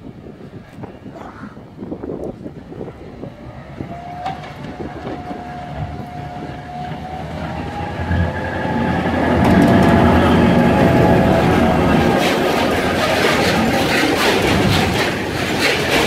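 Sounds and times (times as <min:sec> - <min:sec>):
diesel locomotive engine rumble: 0:00.0 - 0:16.0
train wheel noise: 0:02.0 - 0:16.0
steady high tone: 0:07.8 - 0:14.4.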